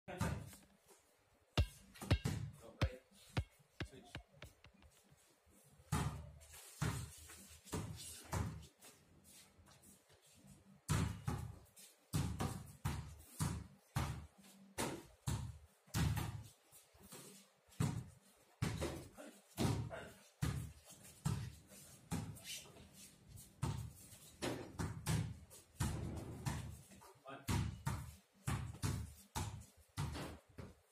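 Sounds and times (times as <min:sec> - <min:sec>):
basketballs bouncing on pavement: 0:01.6 - 0:04.8, 0:05.9 - 0:08.7, 0:10.9 - 0:14.3, 0:23.6 - 0:26.9, 0:27.5 - 0:30.8.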